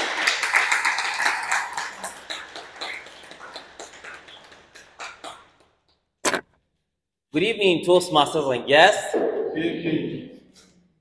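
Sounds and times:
small audience clapping: 0:00.0 - 0:05.9.

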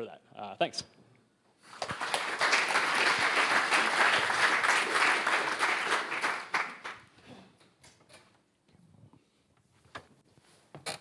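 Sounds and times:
audience applauding: 0:01.7 - 0:07.2.

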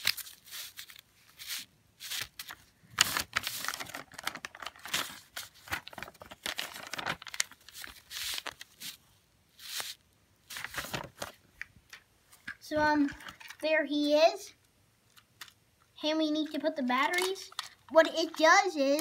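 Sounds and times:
paper rustling and crinkling: 0:00.0 - 0:09.0, 0:09.6 - 0:11.4, 0:17.0 - 0:19.0.

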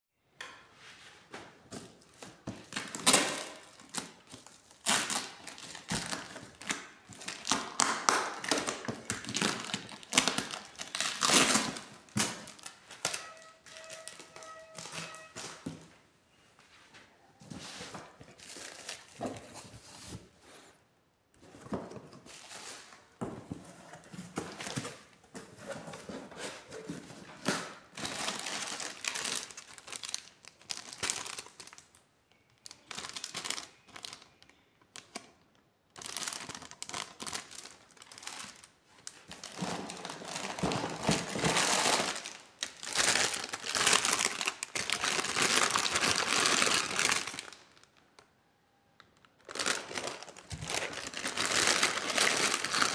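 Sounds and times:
plastic packaging crinkling: 0:01.7 - 0:15.7, 0:18.2 - 0:20.2, 0:27.4 - 0:35.3, 0:35.9 - 0:48.2, 0:49.1 - 0:52.9.

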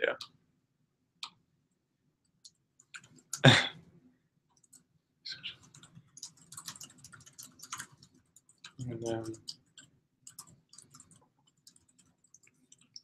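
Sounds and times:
keyboard and mouse clicks: 0:02.4 - 0:03.6, 0:04.6 - 0:13.0.

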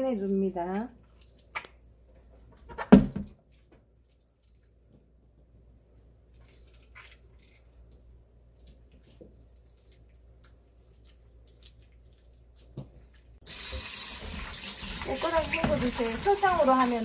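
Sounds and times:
wet squelching: 0:00.0 - 0:13.6, 0:14.2 - 0:17.0
tap water running into bowl: 0:13.4 - 0:17.0.

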